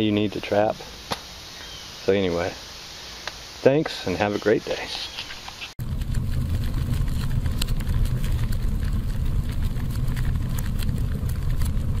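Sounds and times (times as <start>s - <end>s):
fire crackling: 5.5s - 12.0s
flames rumbling: 5.8s - 12.0s.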